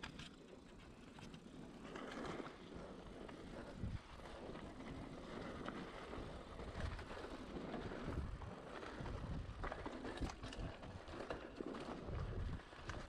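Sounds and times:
bike rattling and knocking: 4.2 - 13.0.

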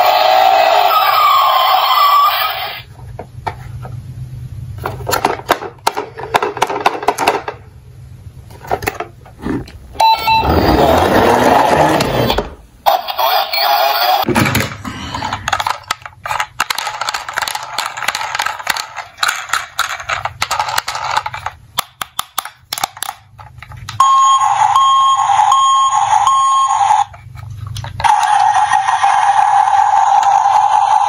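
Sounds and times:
electronic toy siren pulsing: 0.0 - 2.8, 24.0 - 27.1, 28.0 - 31.0
plastic toys clicking and rattling: 4.8 - 7.6, 14.5 - 24.0.

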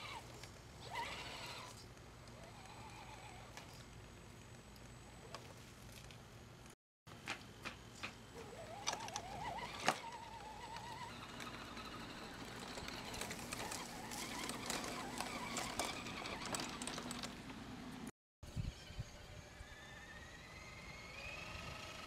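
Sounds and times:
toy truck electric motor whining: 0.0 - 3.7, 8.4 - 17.4, 19.3 - 22.0
clicks and crackles: 12.4 - 17.6.

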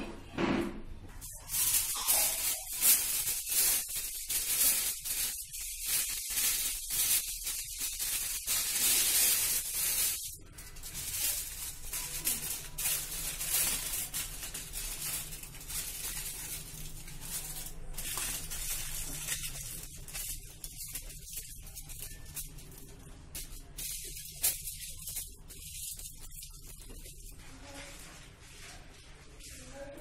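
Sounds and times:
aluminium foil crinkling: 1.2 - 30.0.

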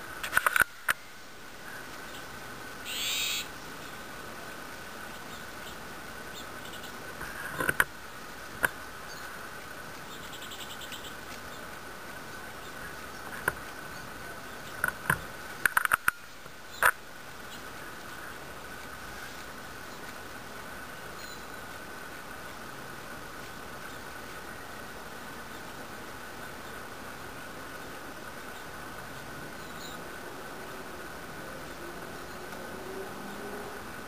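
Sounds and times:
short bird call: 2.9 - 3.5.

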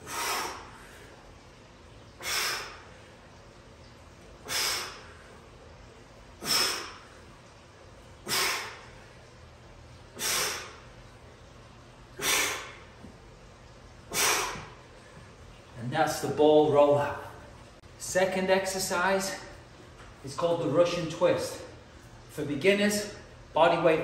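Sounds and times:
man exhaling forcefully: 0.0 - 1.1, 2.2 - 3.0, 4.4 - 5.3, 6.4 - 7.2, 8.2 - 9.0, 10.2 - 10.8, 12.2 - 12.9, 14.1 - 14.8.

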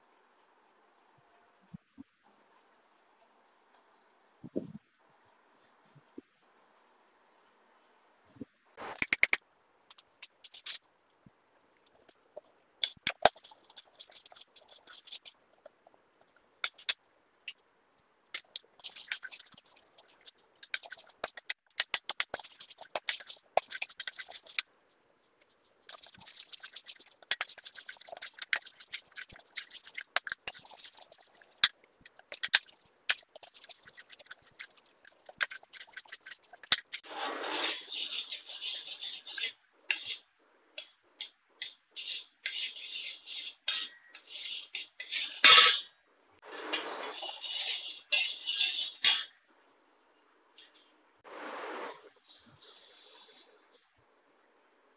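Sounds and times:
metal spoon scraping pot: 18.4 - 24.6, 25.8 - 40.2, 41.2 - 45.9, 46.6 - 49.4.

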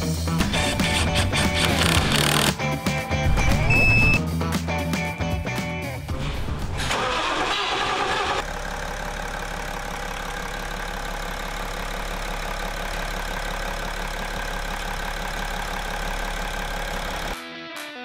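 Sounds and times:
diesel engine idling: 7.0 - 17.4.

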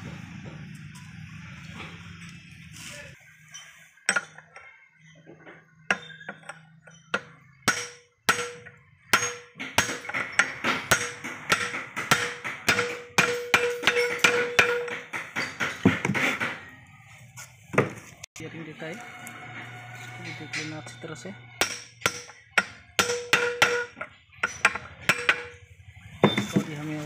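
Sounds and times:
hammer striking steel pipe: 7.1 - 16.2, 21.6 - 25.6.

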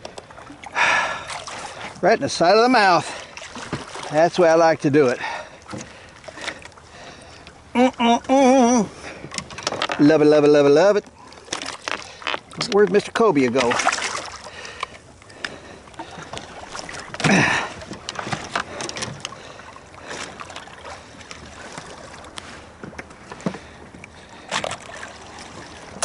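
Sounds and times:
water wash: 11.5 - 22.6.

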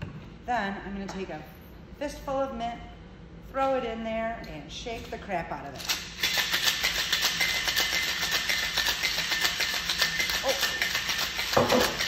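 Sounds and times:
cocktail shaker rattling: 5.8 - 12.0.

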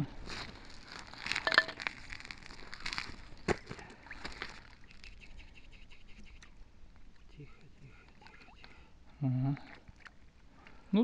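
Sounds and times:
crunching and scraping on icy snow: 0.0 - 4.9.

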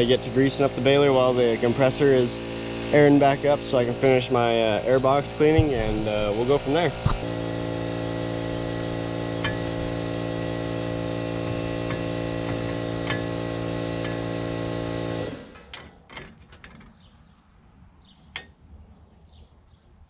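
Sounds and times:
air compressor humming: 0.0 - 16.0.

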